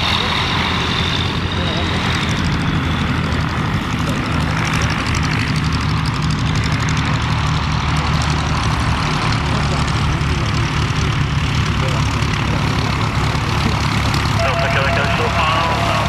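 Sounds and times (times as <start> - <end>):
propeller engine running: 0.0 - 16.0.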